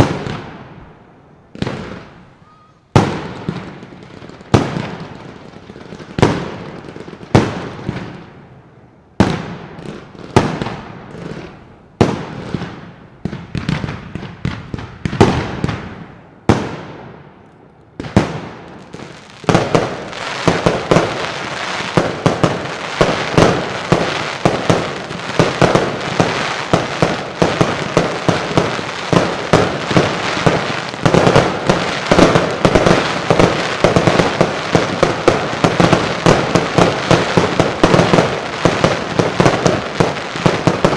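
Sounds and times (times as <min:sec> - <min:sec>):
fireworks bursting with bangs: 0:00.0 - 0:40.9
fireworks crackle: 0:01.5 - 0:08.4, 0:09.2 - 0:40.9.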